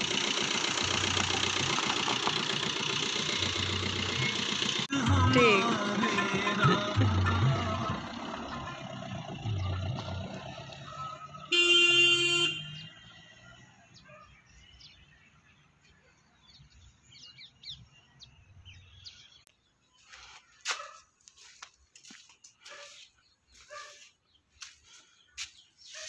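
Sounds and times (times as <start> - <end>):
car horn beep: 11.4 - 13.3.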